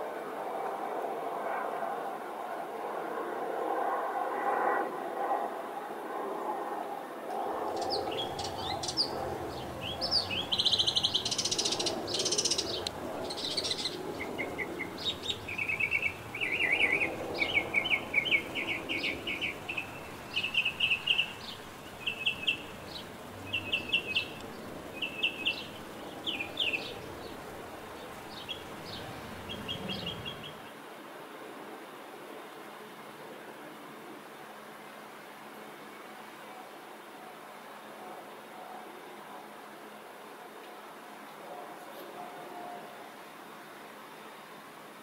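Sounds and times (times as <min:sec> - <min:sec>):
songbirds chirping: 0:07.7 - 0:30.8
low steady background rumble: 0:07.8 - 0:30.6.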